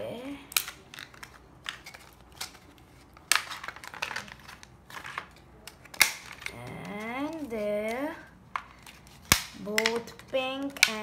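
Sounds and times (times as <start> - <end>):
plastic packaging crinkling: 0.5 - 11.0.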